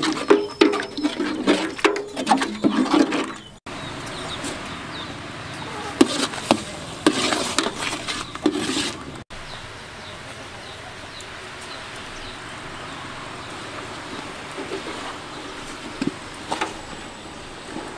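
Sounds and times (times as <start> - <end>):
metal ladle scraping pot: 0.0 - 3.6, 5.7 - 9.2.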